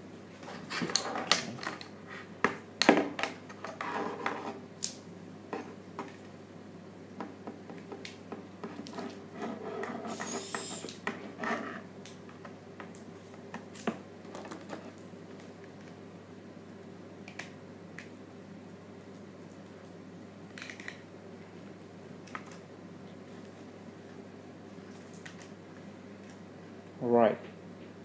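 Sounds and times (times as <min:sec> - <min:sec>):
short hiss: 0:10.1 - 0:11.0.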